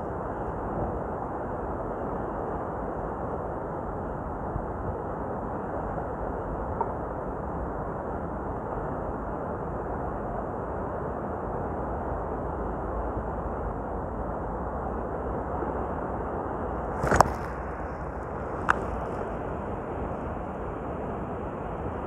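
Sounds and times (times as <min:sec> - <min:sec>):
wind on microphone: 0:14.1 - 0:22.0.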